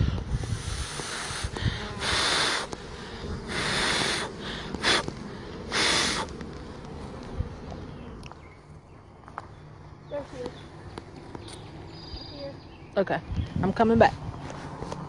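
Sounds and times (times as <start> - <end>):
hissing puffs of air: 0.0 - 7.6
low handling rumble: 6.3 - 15.0.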